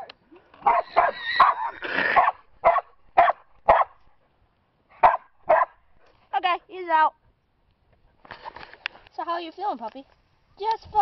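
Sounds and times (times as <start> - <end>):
dog barking: 0.6 - 4.0, 5.0 - 5.8.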